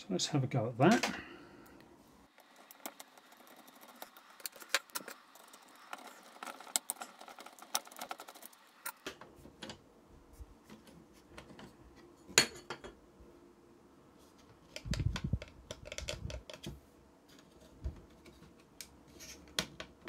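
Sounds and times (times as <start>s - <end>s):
screwdriver clicks and scrapes: 2.4s - 9.0s.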